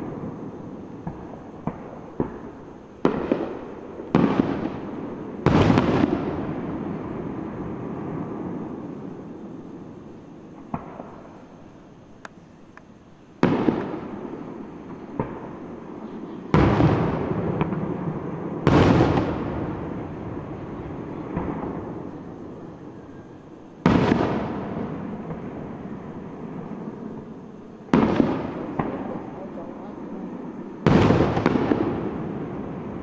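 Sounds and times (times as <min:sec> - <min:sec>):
fireworks booming with echo: 0:00.0 - 0:11.8, 0:13.4 - 0:33.0
sharp firework cracks: 0:01.0 - 0:07.2, 0:10.6 - 0:11.4, 0:13.4 - 0:15.6, 0:16.5 - 0:22.3, 0:23.8 - 0:25.7, 0:27.9 - 0:29.7, 0:30.8 - 0:33.0.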